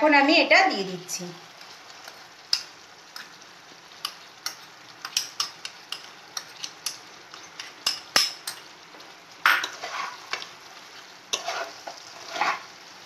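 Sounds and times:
food sizzling in a pan: 0.0s - 13.0s
spatula clicking on pan: 4.0s - 8.7s
spatula scraping pan: 9.5s - 12.8s.

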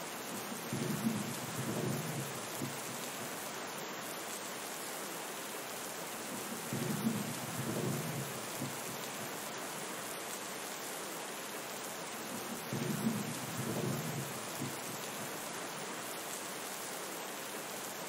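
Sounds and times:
steady rain: 0.0s - 18.0s
thunder rumbling: 0.7s - 2.8s, 6.6s - 9.0s, 12.4s - 15.0s.

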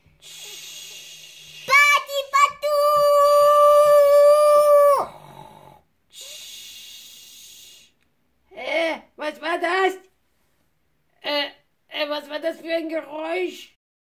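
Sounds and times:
child screaming: 1.7s - 5.1s
snore: 5.0s - 6.4s.

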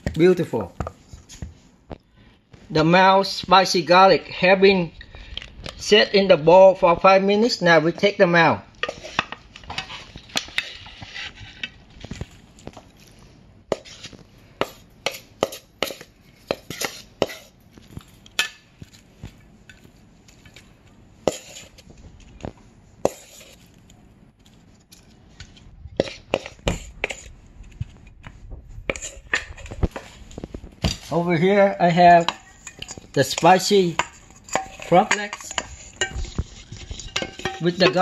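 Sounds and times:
spatula scraping metal bowl: 8.8s - 11.8s, 13.7s - 14.2s, 15.1s - 17.5s, 21.2s - 21.8s, 23.0s - 23.7s, 26.0s - 27.3s, 28.9s - 30.1s, 30.9s - 38.0s.

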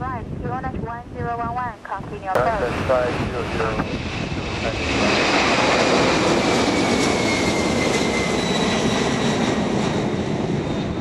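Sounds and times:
jet engines roaring at takeoff: 2.4s - 11.0s.

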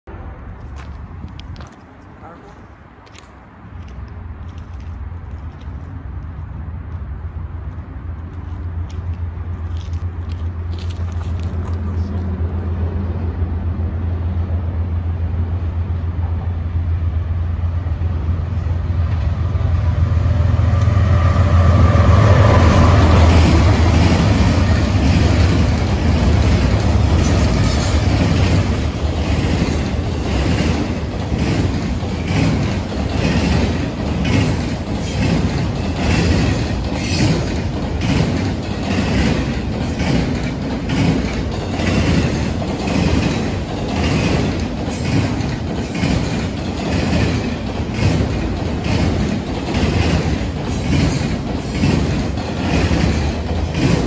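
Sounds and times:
diesel locomotive rumble: 0.1s - 54.0s
train wheels clacking: 22.2s - 54.0s.

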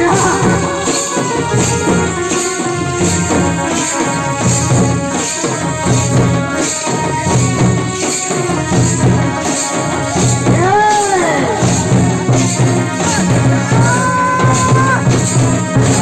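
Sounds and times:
barrel drums beating: 0.0s - 16.0s.

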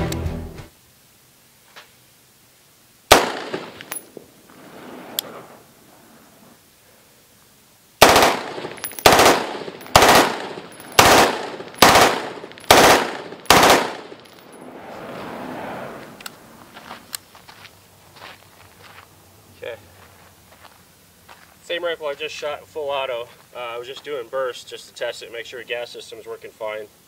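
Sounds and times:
rifle firing full-auto bursts: 3.1s - 4.0s, 8.0s - 14.2s.

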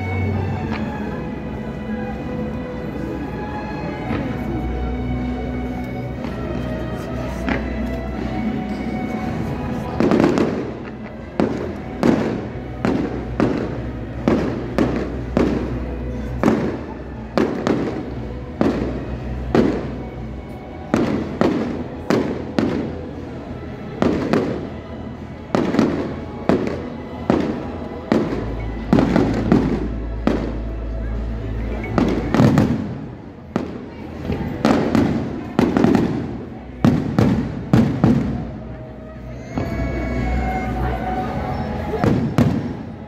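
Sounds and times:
firework bangs: 9.8s - 20.0s, 24.0s - 24.7s, 31.9s - 38.7s, 41.9s - 43.0s.

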